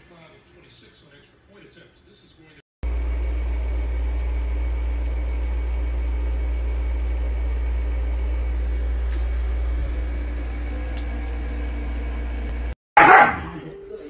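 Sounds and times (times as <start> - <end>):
low mechanical hum: 2.8 - 12.8.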